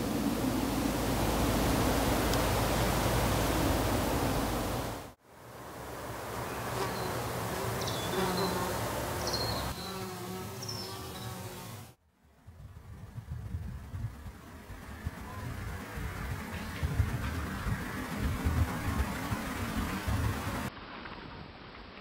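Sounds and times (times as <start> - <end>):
steady rushing noise: 0.0 - 9.8, 12.4 - 20.7
insects buzzing: 0.0 - 12.0
high bird chirps: 7.8 - 11.4.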